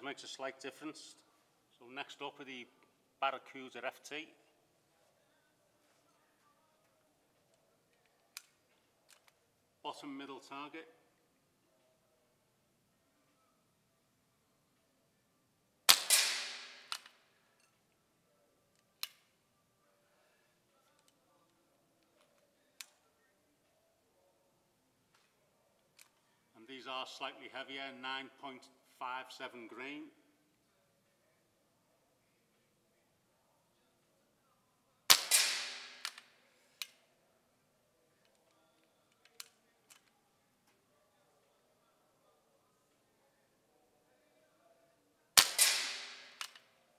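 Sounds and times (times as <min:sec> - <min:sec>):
air rifle shot crack: 0:15.9 - 0:17.0, 0:35.1 - 0:36.1, 0:45.4 - 0:46.5.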